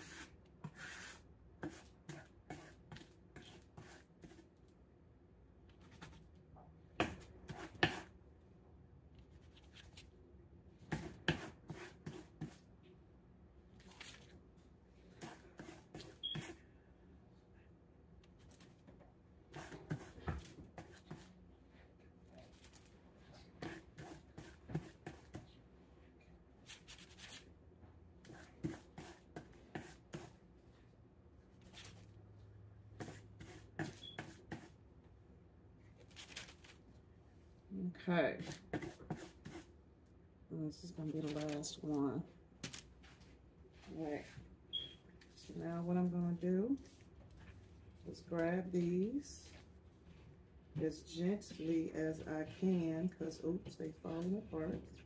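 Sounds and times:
paper rustling: 13.8 - 14.4, 36.0 - 36.8, 41.1 - 41.8.

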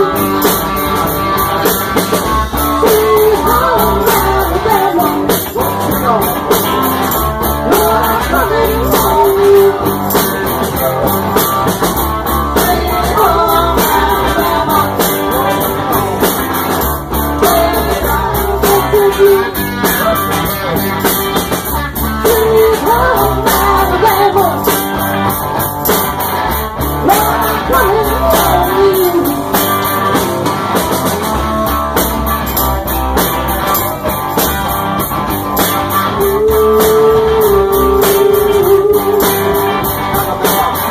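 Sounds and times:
live rock band playing: 0.0 - 40.9
person singing: 2.6 - 11.6, 12.4 - 21.1, 22.0 - 24.9, 26.8 - 30.2, 36.1 - 40.9.

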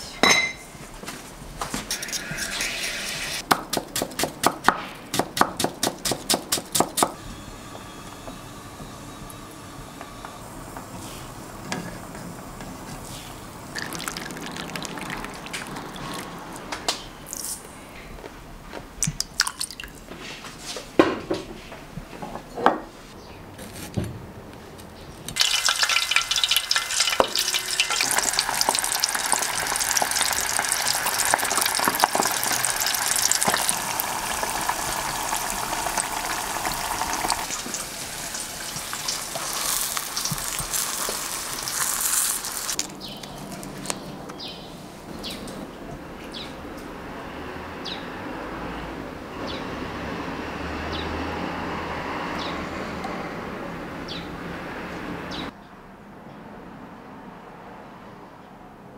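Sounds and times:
fish deep-frying in hot oil: 13.1 - 16.2, 25.4 - 42.8
liquid trickling: 13.7 - 16.6, 19.2 - 20.0, 25.4 - 42.8.

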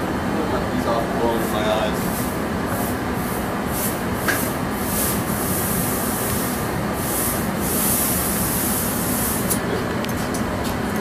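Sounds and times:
gas furnace roaring: 0.0 - 11.0.

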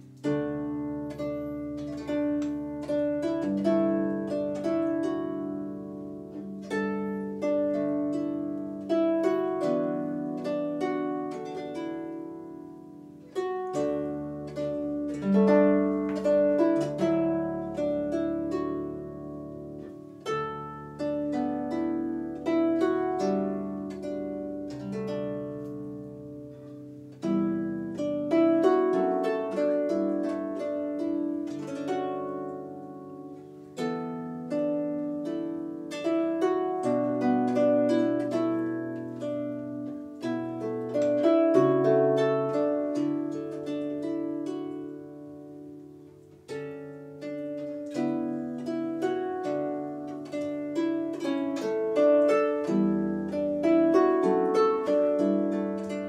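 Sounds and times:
harp plucked melody: 0.0 - 56.0.

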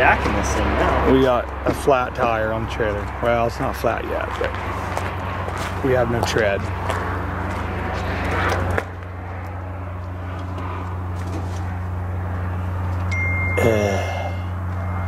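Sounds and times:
vehicle engine idling: 0.0 - 15.0
thin high tone: 13.1 - 15.0.

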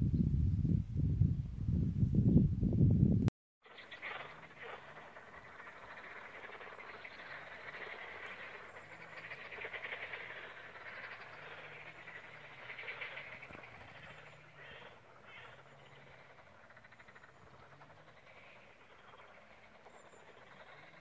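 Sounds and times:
chorus of small animals trilling: 3.6 - 21.0.

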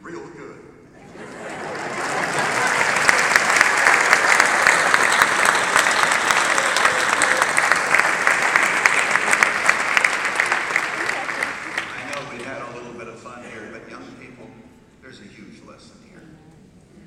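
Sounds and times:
large audience applauding: 1.1 - 12.6.

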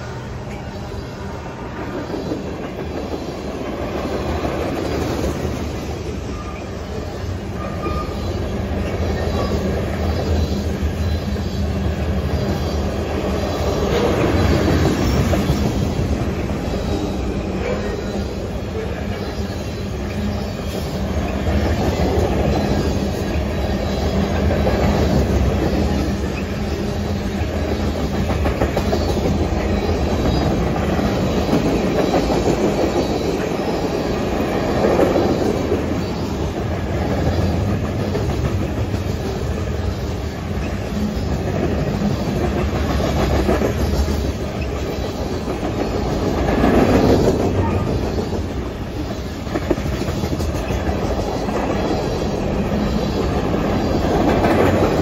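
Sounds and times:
freight train wheels on rails: 0.0 - 55.0.

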